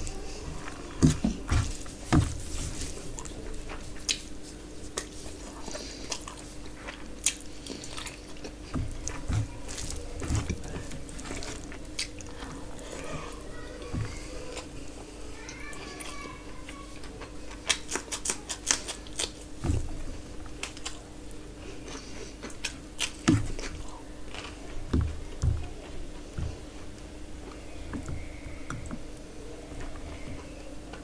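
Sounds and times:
chewing food: 0.0 - 31.0
soft low thumps: 0.9 - 2.6, 8.6 - 11.3, 24.8 - 30.4.

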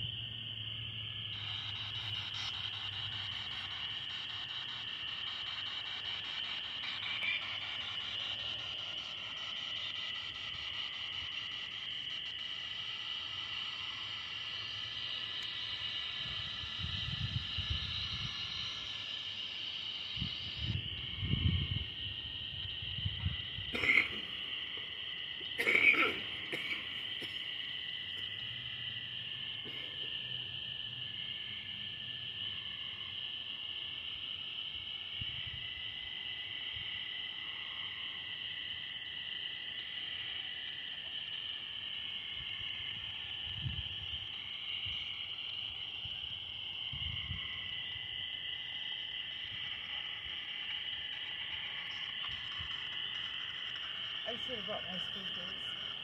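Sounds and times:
crickets chirring: 0.0 - 56.0
night insects chorus: 0.0 - 56.0
person coughing: 23.7 - 24.3, 25.6 - 27.4.

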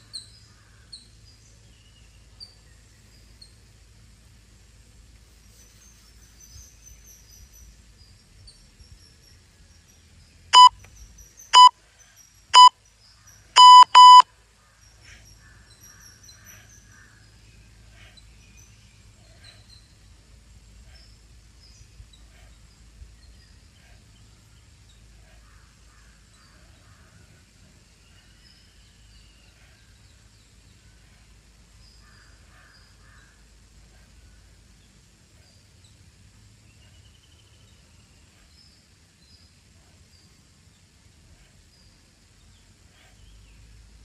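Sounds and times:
faint bird chirps: 5.2 - 43.8
electronic timer beeps: 10.6 - 10.8, 13.6 - 14.2.

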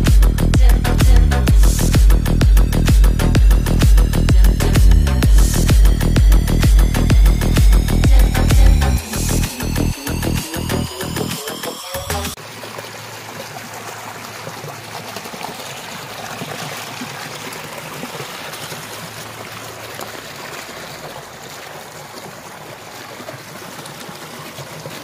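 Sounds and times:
water rushing from pipe: 12.4 - 25.0.

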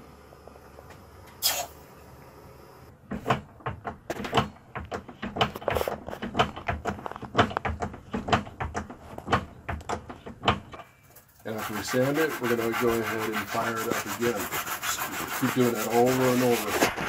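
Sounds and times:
hand torch hissing: 1.4 - 2.0
ring being sanded by hand: 11.4 - 17.0.

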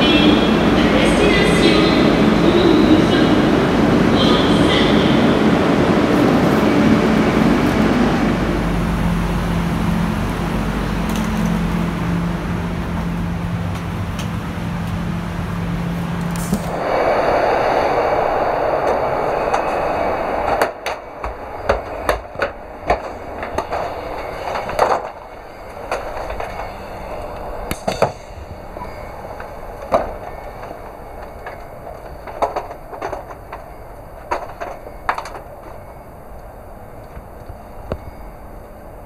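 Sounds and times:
loud rushing noise: 0.0 - 13.7, 14.4 - 29.1
train cabin rumble: 0.0 - 39.0.

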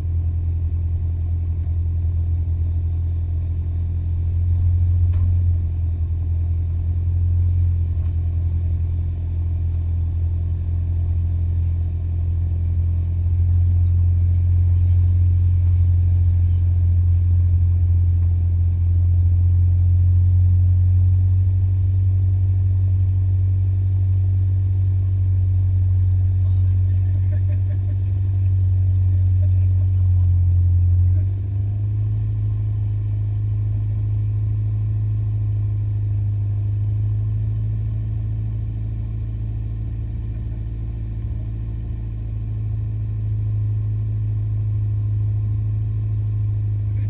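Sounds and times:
engine droning uphill: 0.0 - 47.0.

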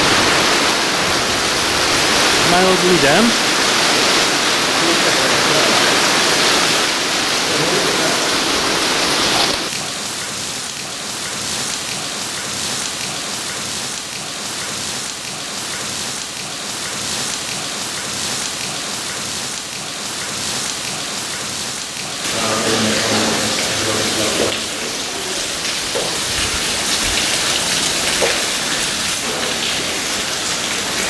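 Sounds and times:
heavy rain hissing: 0.0 - 13.7, 21.1 - 31.0.

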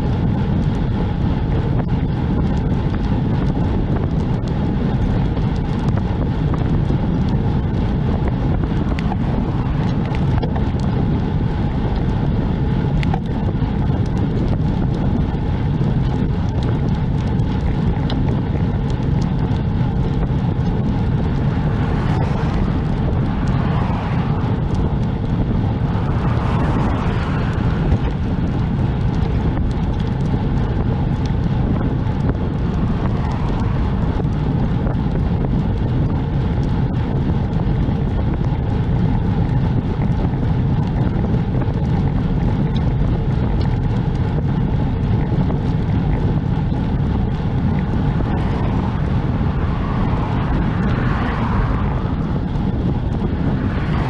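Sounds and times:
wind rumble on microphone: 0.0 - 54.0
passing road traffic: 4.5 - 17.9, 18.6 - 37.1, 46.3 - 54.0.

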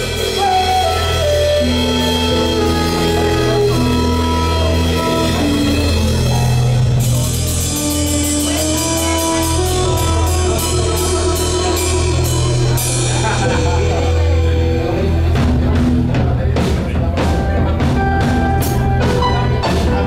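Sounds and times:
flute: 0.0 - 12.8
heavy bass line: 0.0 - 20.0
progressive rock band instrumental: 0.0 - 20.0.

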